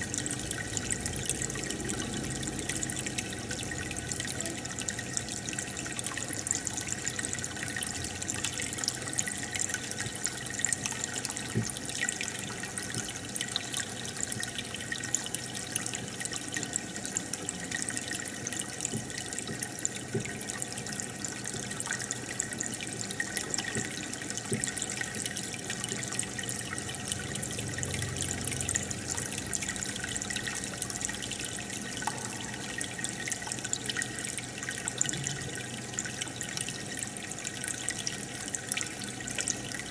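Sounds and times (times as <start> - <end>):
aquarium water bubbling: 0.0 - 39.9
small pops and drips: 17.8 - 39.9.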